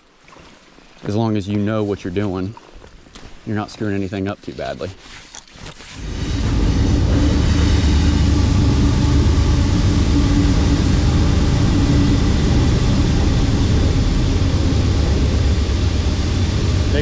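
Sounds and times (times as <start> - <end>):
loud rushing noise with deep rumble: 6.0 - 17.0.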